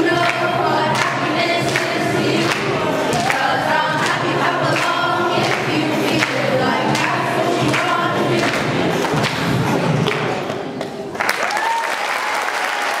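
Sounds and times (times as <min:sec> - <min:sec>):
children's choir singing: 0:00.0 - 0:10.5
applause: 0:01.7 - 0:03.4, 0:11.1 - 0:13.0.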